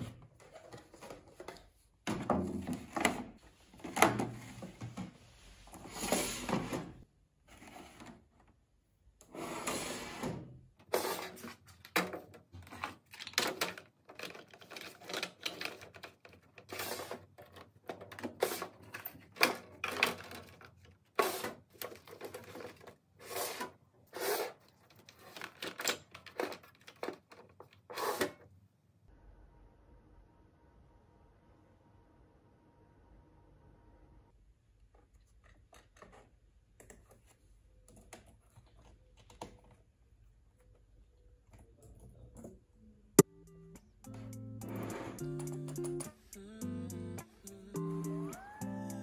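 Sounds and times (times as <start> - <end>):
plastic trays clacking and scraping: 10.8 - 28.4.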